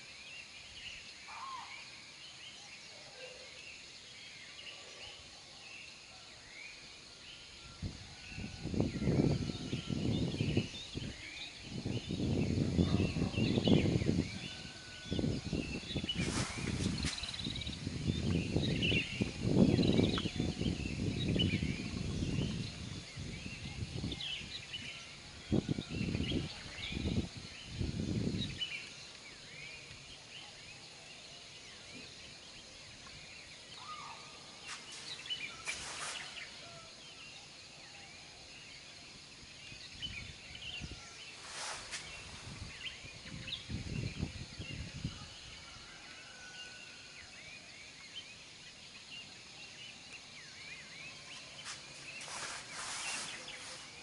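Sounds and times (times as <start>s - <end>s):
small birds chirping: 9.1s - 37.3s, 47.9s - 54.0s.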